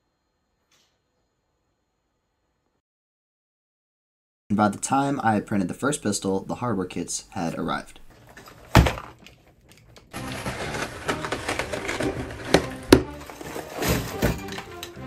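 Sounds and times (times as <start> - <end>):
cardboard box thump: 10.4 - 14.6
knife slicing cardboard: 10.5 - 14.4.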